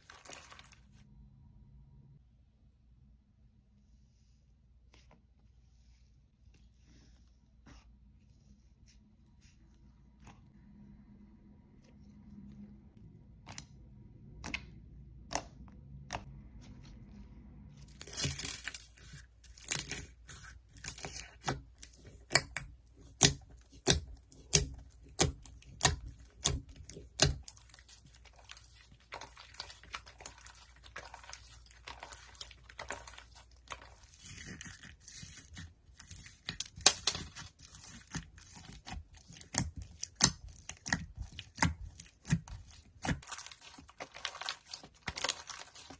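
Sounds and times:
slime crackling and popping: 17.9s - 45.9s.

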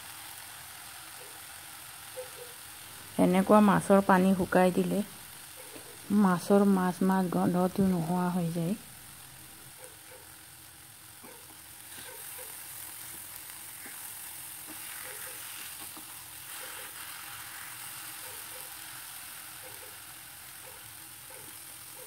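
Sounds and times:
fish sizzling in a pan: 0.0s - 22.0s.

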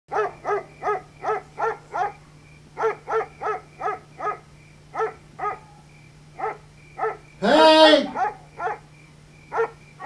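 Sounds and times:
dog barking: 0.1s - 2.2s, 2.8s - 7.3s, 7.9s - 8.9s, 9.5s - 9.8s
steady low hum: 0.1s - 10.0s.

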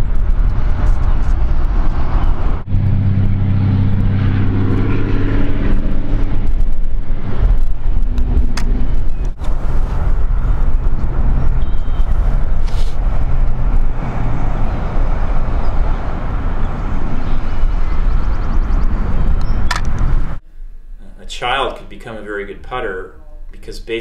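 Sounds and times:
wind buffeting microphone: 0.0s - 20.4s.

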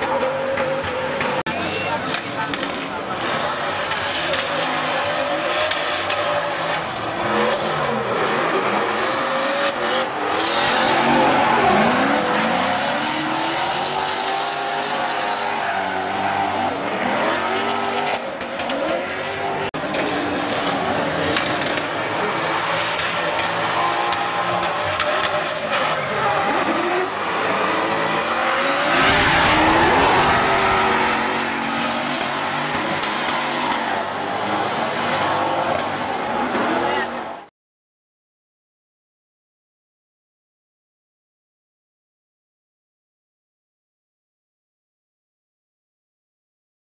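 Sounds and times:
car engines revving hard: 0.0s - 37.4s.

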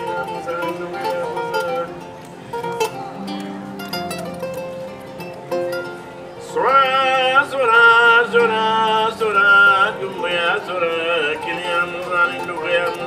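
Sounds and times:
man singing long held notes: 0.0s - 1.9s, 6.4s - 13.0s
plucked harp-lute: 0.0s - 13.0s.

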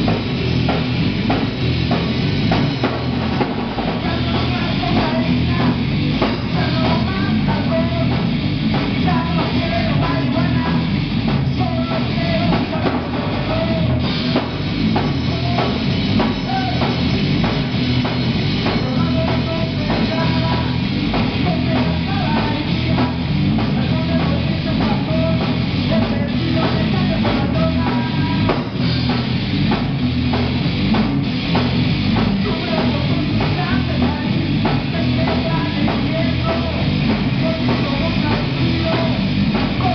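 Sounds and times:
bass guitar: 0.0s - 39.9s
drum kit: 0.0s - 39.9s
electric guitar: 0.0s - 39.9s
person singing into a microphone: 3.8s - 17.1s, 18.6s - 28.8s, 32.4s - 39.9s.

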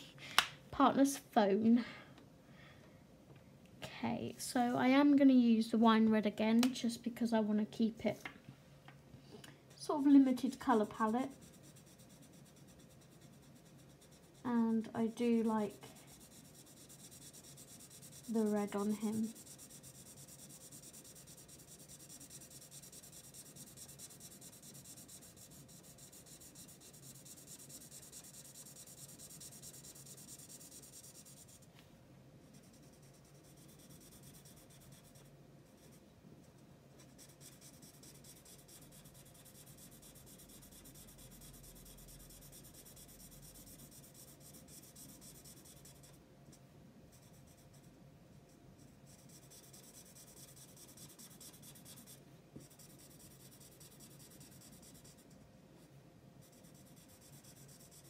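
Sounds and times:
marker pen scratching on paper: 10.2s - 31.7s, 32.5s - 36.0s, 37.0s - 46.2s, 47.1s - 47.9s, 48.8s - 55.4s, 56.4s - 58.0s.

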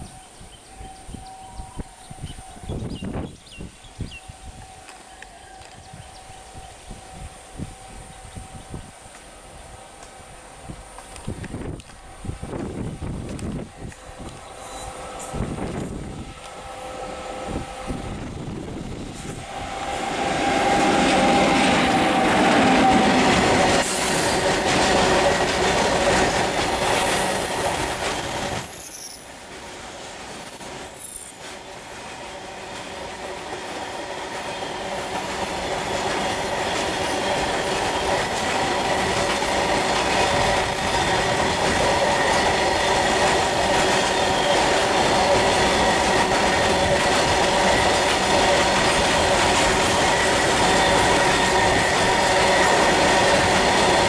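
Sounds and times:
freight train passing: 0.0s - 54.0s
high wheel squeal: 13.8s - 54.0s
wheels clattering on rails: 18.6s - 54.0s.

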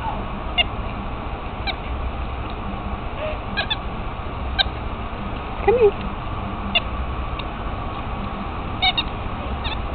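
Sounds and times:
steady low rumble: 0.0s - 9.9s
animal chirping: 3.6s - 3.8s, 8.8s - 9.8s.

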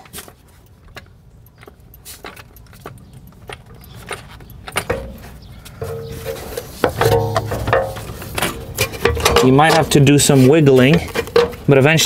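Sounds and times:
metal clicks and clinks: 0.1s - 10.1s
steady pitched hum: 3.4s - 10.0s.

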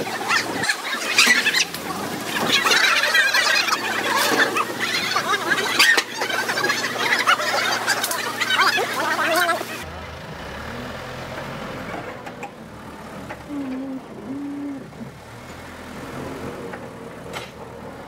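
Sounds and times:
engine idling: 0.0s - 18.0s
short low tones: 13.4s - 15.2s.

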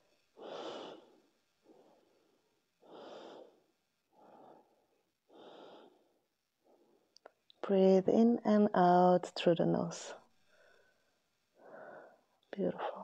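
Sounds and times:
woman breathing slowly: 0.1s - 7.4s, 10.4s - 12.5s.

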